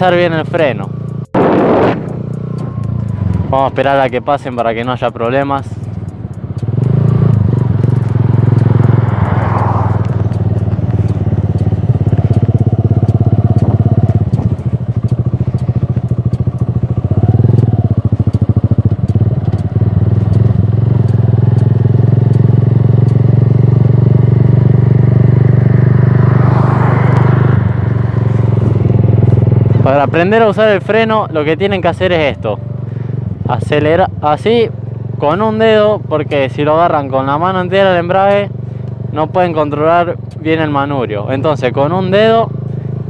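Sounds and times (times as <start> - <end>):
motorcycle engine running: 0.0 - 43.0
car passing close by: 7.9 - 12.0, 25.2 - 29.6.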